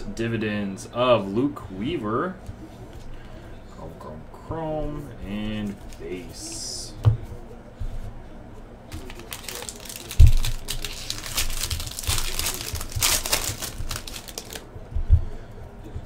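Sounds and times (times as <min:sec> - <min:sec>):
foil wrapper tearing and crinkling: 0:08.9 - 0:14.6.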